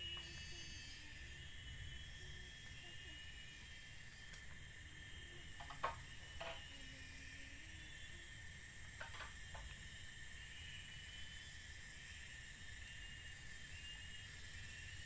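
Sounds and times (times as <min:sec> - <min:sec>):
high-pitched insect chorus: 0:00.0 - 0:15.0
bamboo knocks and clicks: 0:05.6 - 0:06.6.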